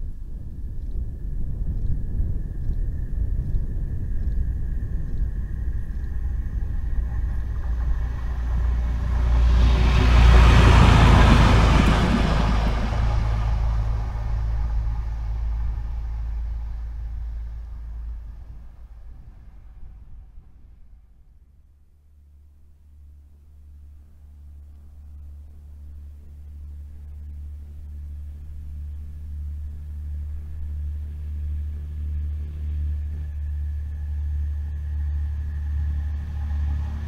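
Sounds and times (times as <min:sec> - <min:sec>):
railbus engine rumble passing: 0:00.0 - 0:37.0.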